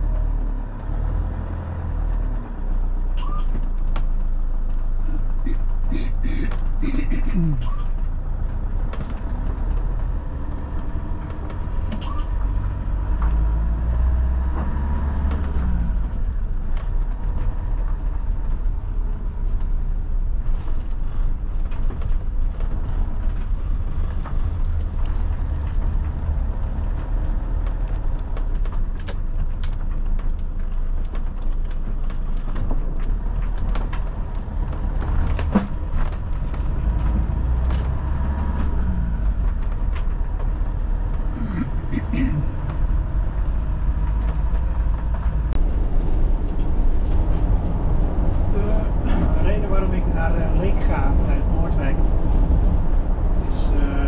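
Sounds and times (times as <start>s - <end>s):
engine and tyres rumbling: 0.0s - 54.0s
light clicks and rattles: 20.4s - 41.4s.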